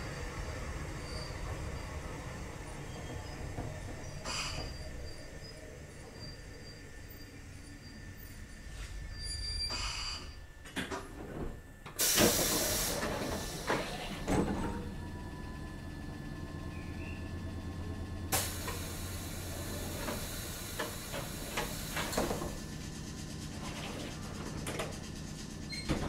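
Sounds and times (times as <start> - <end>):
compressed air hissing: 12.0 - 13.7, 18.3 - 22.6.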